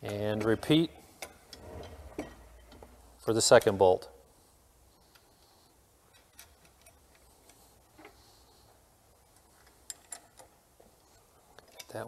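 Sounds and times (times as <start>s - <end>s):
small metal clicks: 6.1s - 8.2s, 9.3s - 10.6s, 11.5s - 12.0s.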